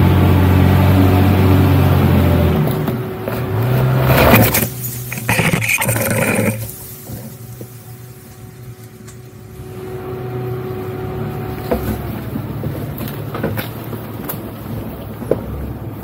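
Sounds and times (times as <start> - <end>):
car engine running: 0.0 - 15.8
branches snapping against car: 12.9 - 14.6.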